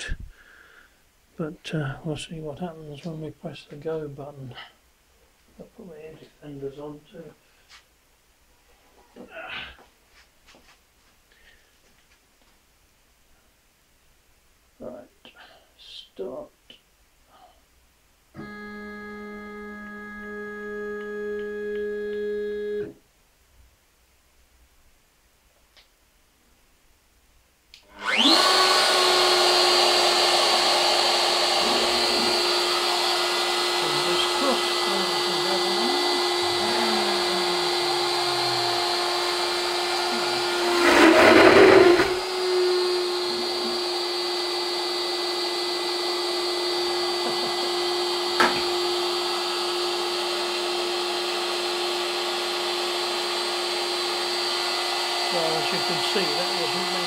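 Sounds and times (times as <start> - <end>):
cutter cutting metal plate: 27.9 - 57.0
router spindle running: 27.9 - 57.0.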